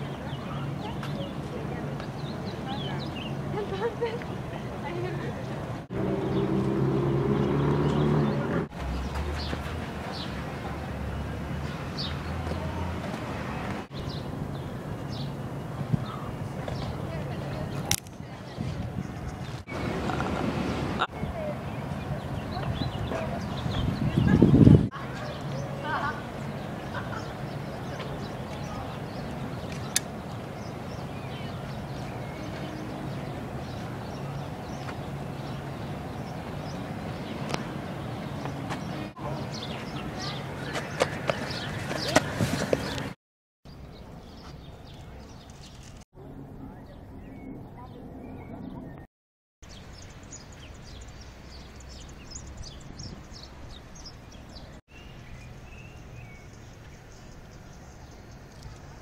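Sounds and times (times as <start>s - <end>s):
birds chirping: 0.0s - 59.0s
traffic noise: 0.0s - 59.0s
footsteps on pavement: 8.7s - 10.9s, 12.0s - 14.2s, 27.8s - 43.2s.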